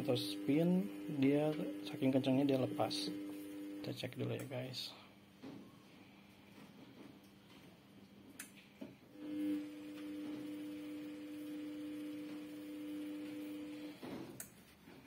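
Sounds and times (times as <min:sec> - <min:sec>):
washing machine hum: 0:00.0 - 0:04.1, 0:09.1 - 0:15.0.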